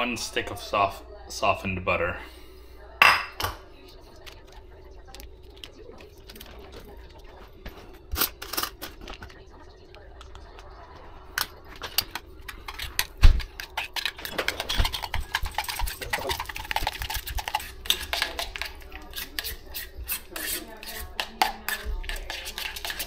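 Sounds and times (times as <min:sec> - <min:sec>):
spoon scraping metal bowl: 0:11.4 - 0:23.0.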